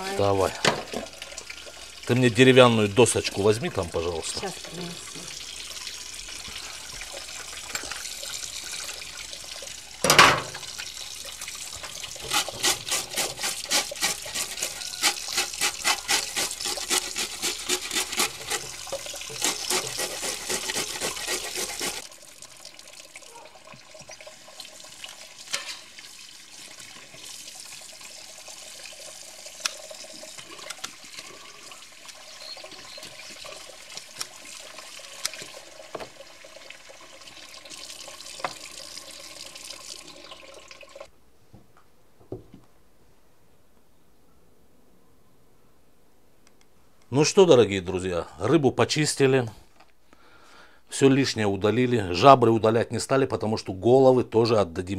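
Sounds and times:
tap water running into sink: 0.3 - 41.1
grater scraping fish scales: 12.2 - 22.1.

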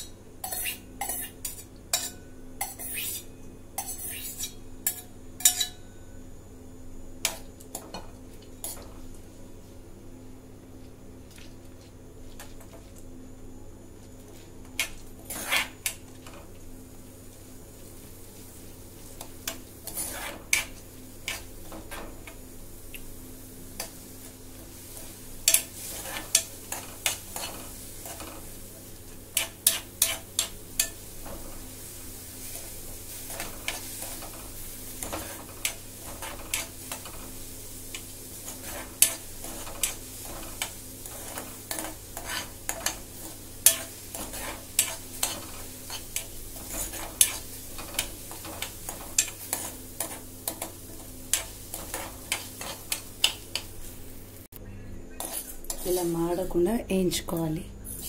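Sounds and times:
metal spoon scraping a steel pan: 0.4 - 5.8, 14.8 - 15.9, 19.8 - 20.7, 29.4 - 31.0, 38.5 - 50.7, 51.3 - 53.7, 55.2 - 56.0.

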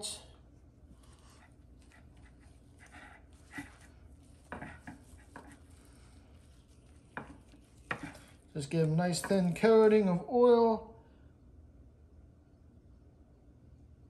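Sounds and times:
room hum: 0.0 - 14.0
soft handling knocks and rubs: 0.9 - 9.6.

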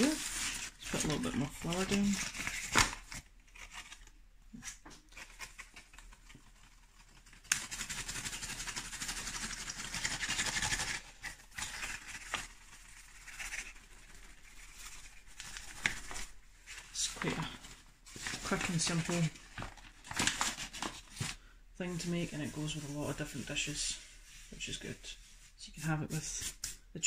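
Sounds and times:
paper bag crinkling: 0.0 - 4.1, 9.4 - 23.5.

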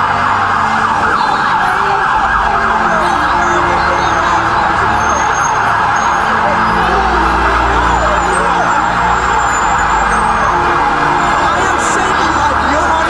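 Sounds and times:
emergency sirens wailing: 0.0 - 13.0.

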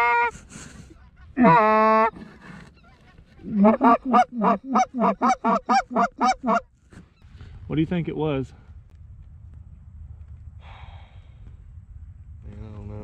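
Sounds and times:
goose call moan and clucks: 0.0 - 0.6, 1.4 - 2.2, 3.4 - 6.6.

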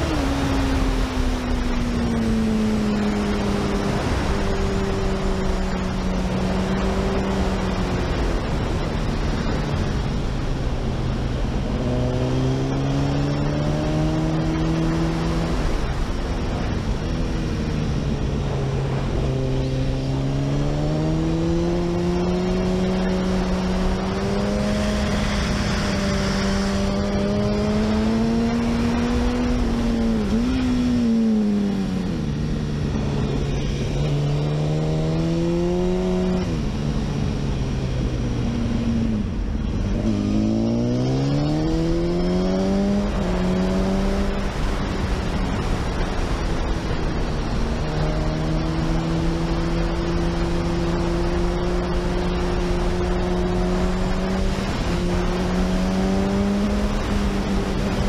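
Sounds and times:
motorcycle engine revving: 0.0 - 10.0, 10.6 - 58.0
wind and road noise: 0.0 - 58.0.

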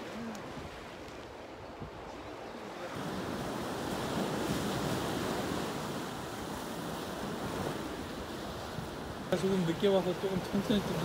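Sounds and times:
surf on rocky shore: 0.0 - 11.0
wind on microphone: 0.0 - 11.0.

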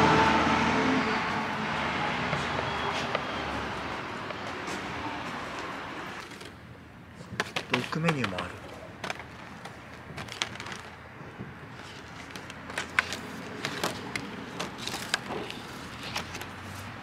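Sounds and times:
menu cards clicking and rustling: 7.4 - 10.9.

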